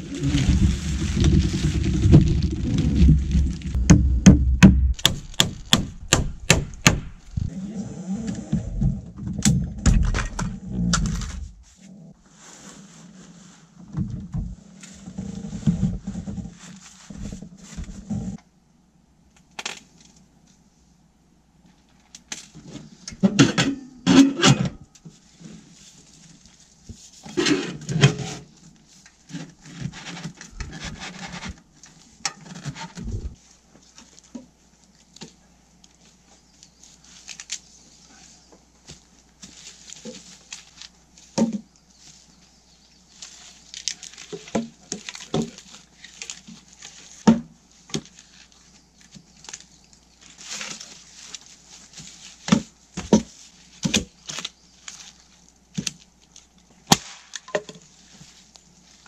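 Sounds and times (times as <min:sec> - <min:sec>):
objects clattering: 0:00.0 - 0:05.0.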